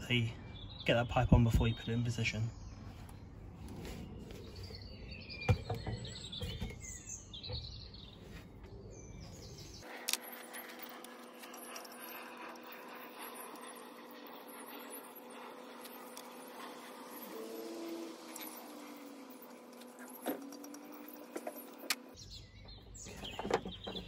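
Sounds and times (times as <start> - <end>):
birds chirping: 0.0 - 24.0.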